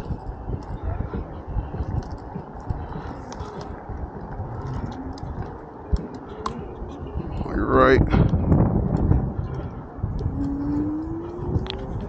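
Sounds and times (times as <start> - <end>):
scooter road rumble: 0.0 - 12.0
wind buffeting microphone: 0.0 - 12.0.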